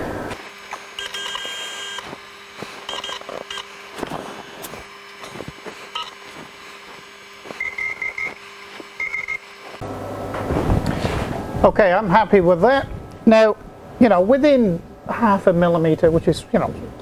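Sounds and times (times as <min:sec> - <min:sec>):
steady low hum: 0:00.0 - 0:17.0
short electronic beeps: 0:02.9 - 0:03.7, 0:05.9 - 0:06.2, 0:07.6 - 0:08.4, 0:09.0 - 0:09.5.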